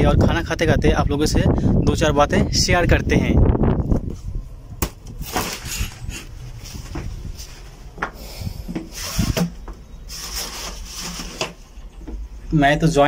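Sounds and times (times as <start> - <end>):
fabric rustling against wood: 5.2 - 8.1, 8.8 - 12.2.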